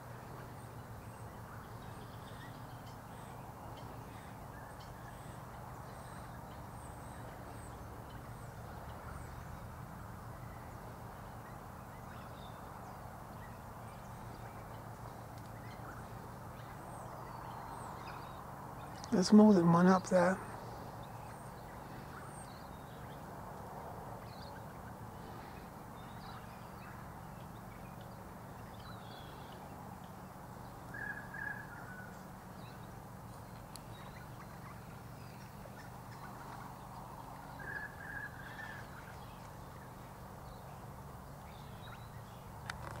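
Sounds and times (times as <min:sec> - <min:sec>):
steady low hum: 0:00.0 - 0:43.0
faint bird calls: 0:24.2 - 0:43.0.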